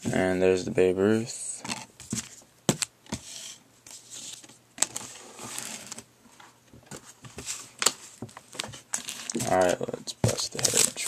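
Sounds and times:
cards rustling and sliding: 1.7s - 6.1s.

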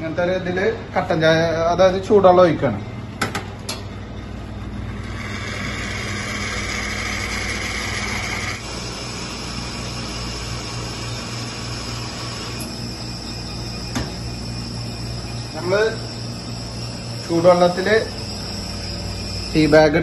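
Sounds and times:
espresso machine humming: 4.2s - 20.0s.

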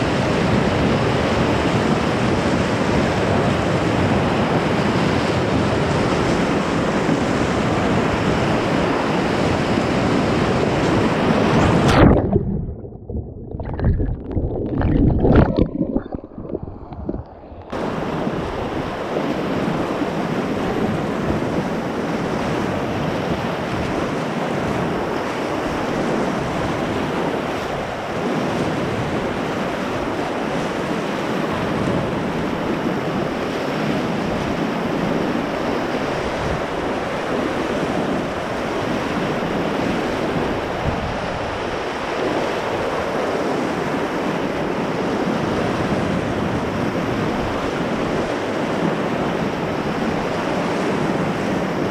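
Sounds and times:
rushing river water: 0.0s - 51.9s
kayak bow splashing: 10.6s - 19.6s
muffled underwater gurgling: 11.1s - 18.5s.

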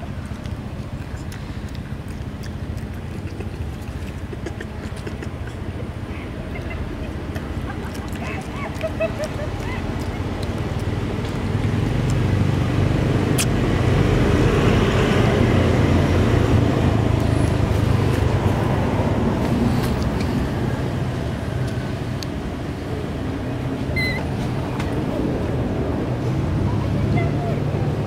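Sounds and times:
short high squeak: 24.0s - 24.3s.

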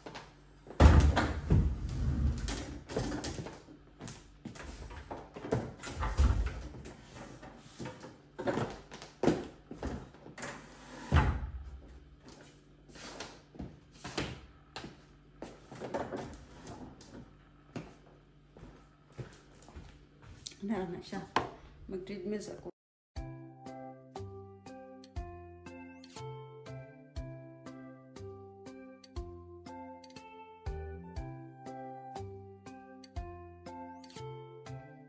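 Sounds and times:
treadmill clunking and rattling: 0.7s - 12.0s, 15.7s - 17.3s.

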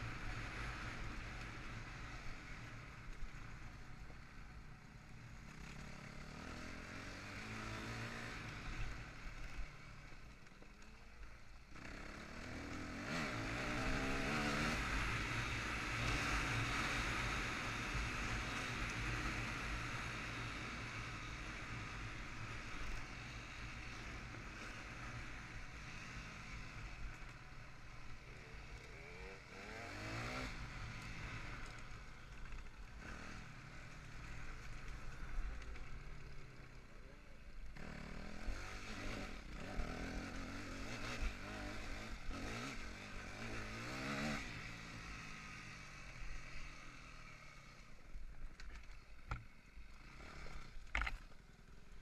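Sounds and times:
dirt bike engine revving: 5.4s - 9.6s, 11.7s - 36.4s, 37.7s - 47.9s.

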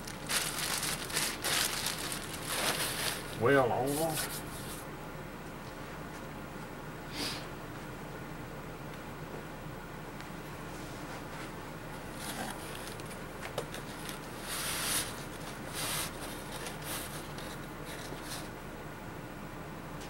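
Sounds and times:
low room hum: 0.0s - 20.0s.

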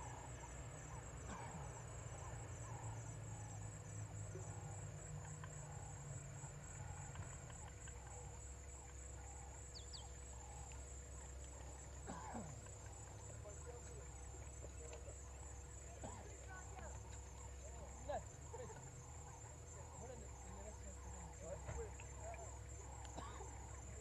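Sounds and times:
high-pitched insect trill: 7.9s - 12.2s.

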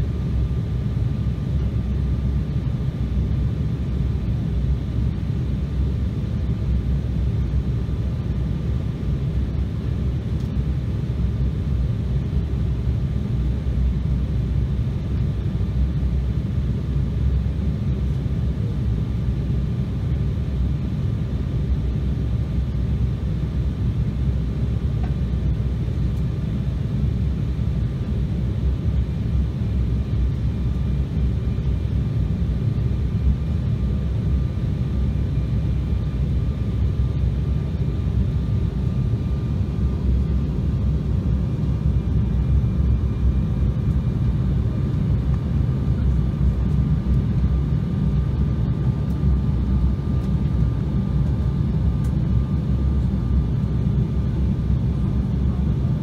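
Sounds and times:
airliner cabin engine rumble: 0.0s - 56.0s
faint steady whine: 0.0s - 56.0s.

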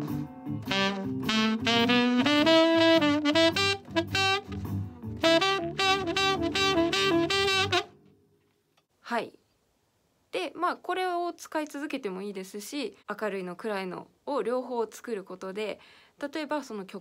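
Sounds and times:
blues backing track: 0.0s - 8.0s
saxophone blues solo: 0.7s - 8.0s.

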